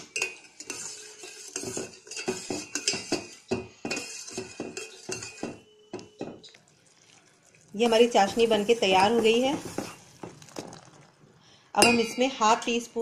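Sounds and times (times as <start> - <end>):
metal spoon scraping a pot: 0.0 - 6.6, 7.8 - 10.1.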